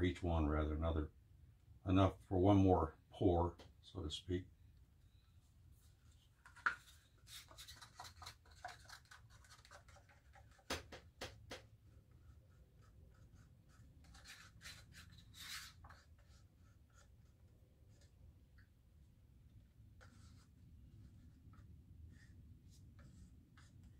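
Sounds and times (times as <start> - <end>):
stir stick scraping paper cup: 11.9 - 18.2.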